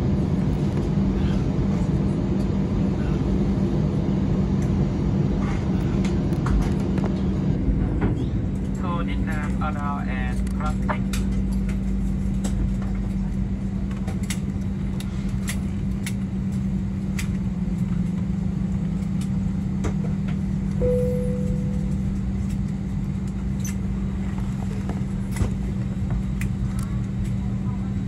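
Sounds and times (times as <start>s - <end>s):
jet engines idling drone: 0.0s - 28.0s
short tone: 20.8s - 22.3s.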